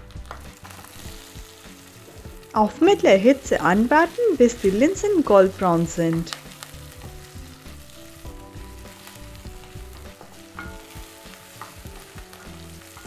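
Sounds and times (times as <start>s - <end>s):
food sizzling in oil: 0.0s - 13.0s.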